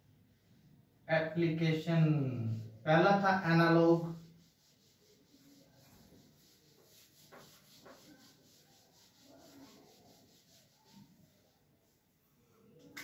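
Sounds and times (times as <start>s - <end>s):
eraser wiping whiteboard: 3.4s - 12.1s.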